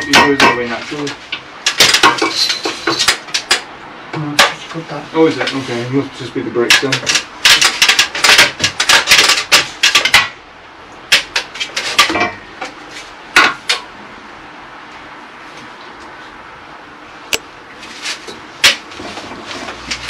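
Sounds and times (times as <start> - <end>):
hand tools clinking and scraping: 0.0 - 3.6, 4.4 - 10.3, 11.1 - 13.1.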